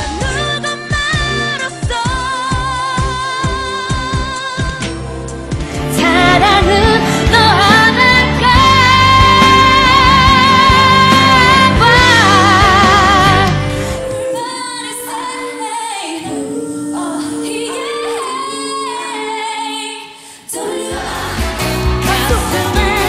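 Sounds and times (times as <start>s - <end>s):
band accompaniment: 0.0s - 14.4s, 20.9s - 23.0s
drums: 0.0s - 14.6s, 20.8s - 23.0s
women belting high notes: 5.8s - 21.4s.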